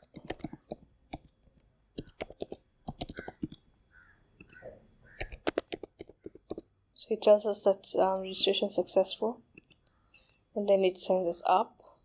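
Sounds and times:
typing on computer keyboard: 0:00.0 - 0:03.6, 0:05.2 - 0:06.7.

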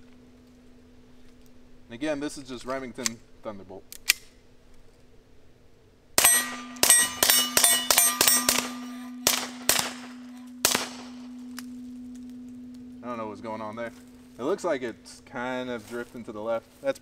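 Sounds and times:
steady ringing tone: 0:00.0 - 0:02.2, 0:06.2 - 0:17.0
suppressed gunshots: 0:06.2 - 0:11.3
steel target clanging: 0:06.2 - 0:16.4.

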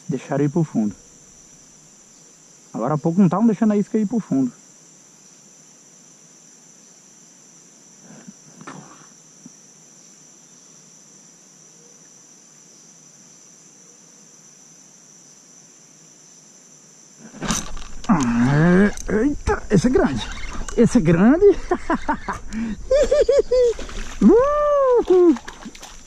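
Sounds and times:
high-pitched insect chorus: 0:00.0 - 0:26.0.

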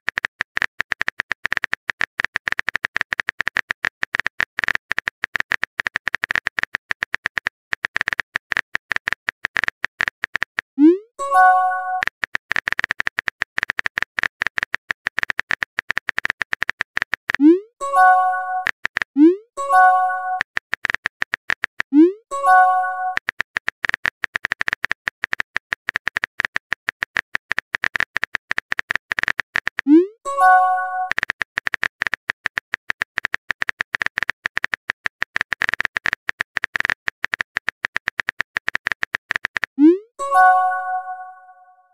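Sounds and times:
phone keyboard clicks: 0:00.1 - 0:10.7, 0:11.4 - 0:19.1, 0:19.8 - 0:21.9, 0:22.5 - 0:29.9, 0:30.5 - 0:39.8
message sent chime: 0:11.2 - 0:12.0, 0:17.8 - 0:18.7, 0:19.6 - 0:20.4, 0:22.3 - 0:23.2, 0:30.3 - 0:31.1, 0:39.9 - 0:41.8
multi-tone chime: 0:40.2 - 0:41.7.

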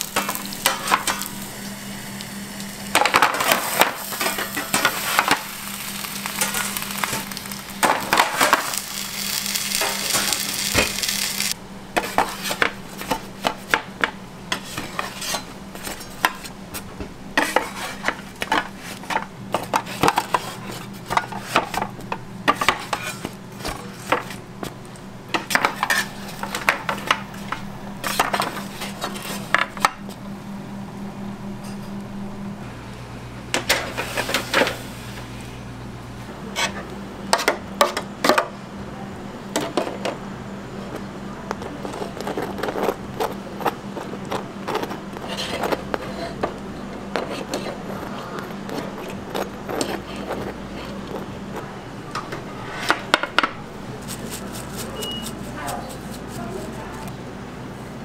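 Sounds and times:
pans and utensils clattering: 0:00.0 - 0:01.3, 0:02.9 - 0:05.5, 0:17.4 - 0:24.4, 0:25.3 - 0:30.0
steady low hum: 0:00.0 - 0:58.0.

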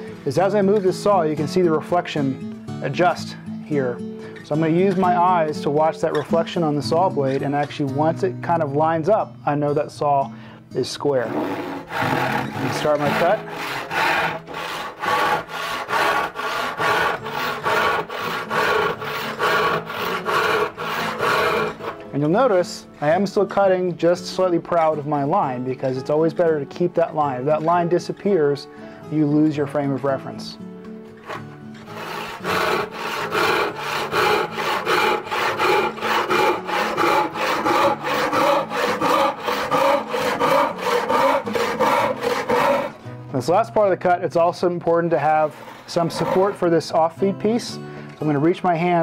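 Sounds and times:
handsaw cutting wood: 0:11.1 - 0:22.1, 0:31.2 - 0:43.0, 0:45.1 - 0:47.0.

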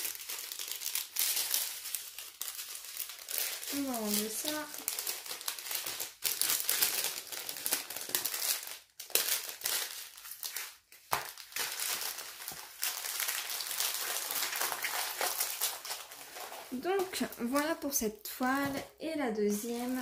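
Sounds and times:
plastic packaging crinkling: 0:00.0 - 0:20.0.

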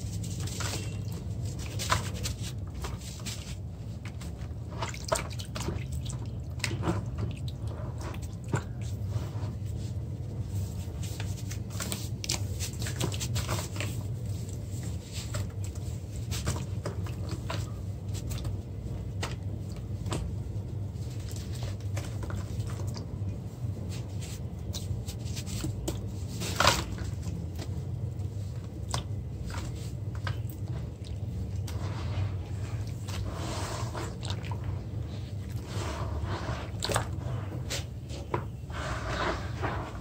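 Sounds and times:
wet squishing: 0:00.0 - 0:40.0
small water splashes: 0:04.6 - 0:08.7.

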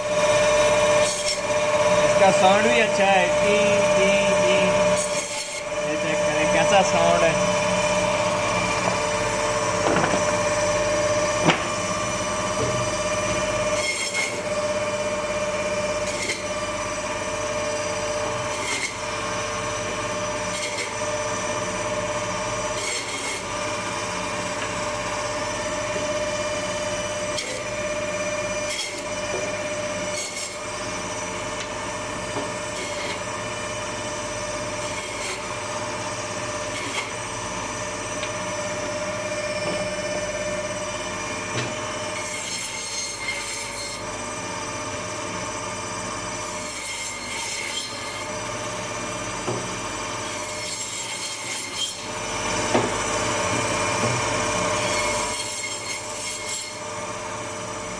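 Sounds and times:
band saw whining: 0:00.0 - 0:57.9
saw blade rasping through meat: 0:00.9 - 0:07.2, 0:13.7 - 0:14.5, 0:15.9 - 0:16.6, 0:18.3 - 0:19.1, 0:20.4 - 0:21.1, 0:22.7 - 0:23.6, 0:27.3 - 0:27.8, 0:28.6 - 0:29.2, 0:30.0 - 0:30.7, 0:32.6 - 0:33.3, 0:34.7 - 0:35.6, 0:36.6 - 0:37.2, 0:42.1 - 0:44.1, 0:46.4 - 0:48.4, 0:50.2 - 0:52.2, 0:54.7 - 0:56.8.

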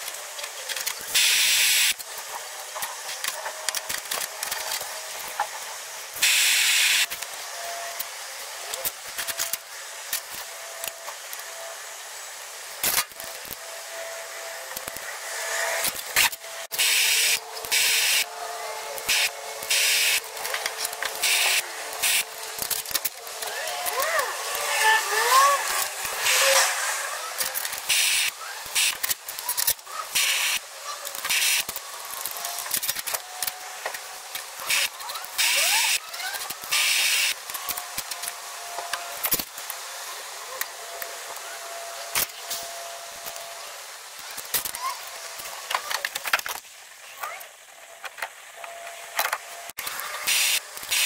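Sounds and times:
gas torch hissing: 0:06.2 - 0:07.4, 0:14.6 - 0:29.4.

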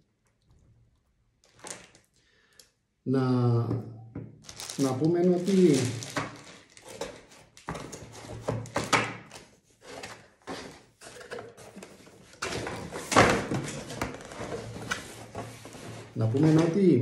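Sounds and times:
packaging handling noise: 0:01.4 - 0:02.2, 0:04.4 - 0:16.9.

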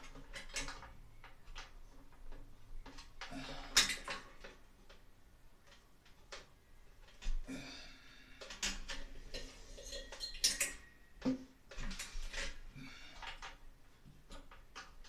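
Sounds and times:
metal tool clinks and scrapes: 0:09.4 - 0:10.9.

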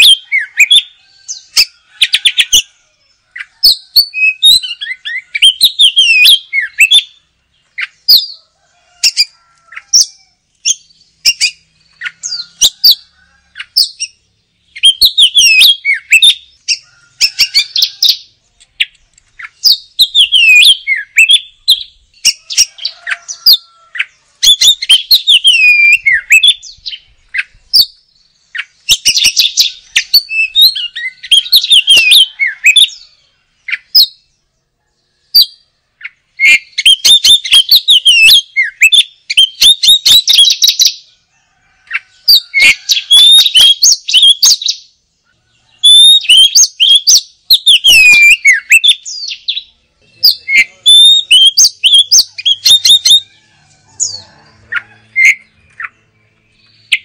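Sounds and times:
bird singing whistled notes: 0:00.0 - 0:08.4, 0:09.0 - 0:34.5, 0:35.1 - 0:41.1, 0:42.2 - 0:53.4, 0:54.0 - 0:57.0.

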